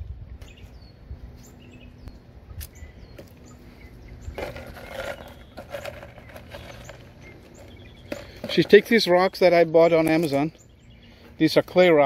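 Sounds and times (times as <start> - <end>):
birds chirping: 0.3 - 12.0
clay pebbles rattling: 4.4 - 8.9.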